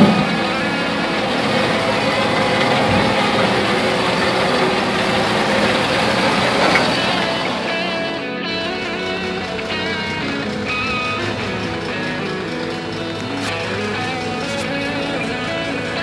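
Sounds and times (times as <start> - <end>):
forklift diesel engine running: 0.0 - 16.0.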